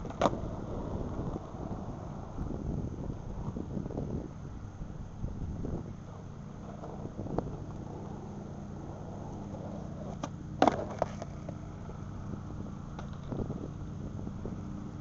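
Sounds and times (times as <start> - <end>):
skateboard tail snapping on asphalt: 0.0 - 1.7, 6.6 - 12.1
skateboard clattering down: 9.1 - 12.0
board knocking on asphalt: 10.0 - 12.0.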